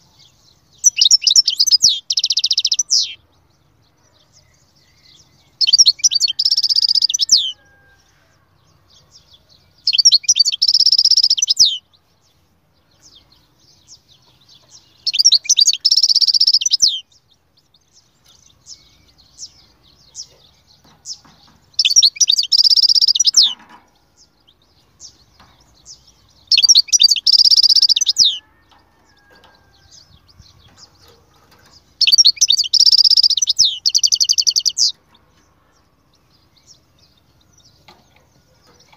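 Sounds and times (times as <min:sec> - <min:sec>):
bird twittering rapidly: 0:26.5 - 0:28.4, 0:32.0 - 0:34.9.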